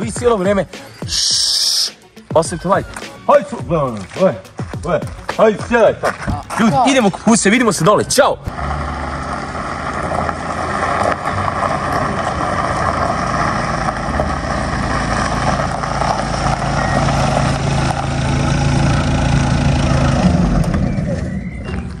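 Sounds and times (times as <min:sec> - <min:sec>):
tyres on gravel: 0:00.0 - 0:22.0
car engine running: 0:08.4 - 0:22.0.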